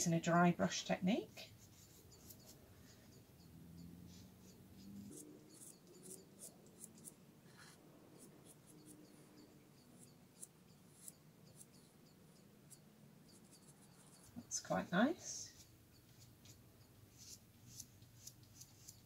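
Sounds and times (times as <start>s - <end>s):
dry paintbrush scratching paper: 1.4s - 3.2s, 4.1s - 9.2s, 10.0s - 11.9s, 15.5s - 19.0s.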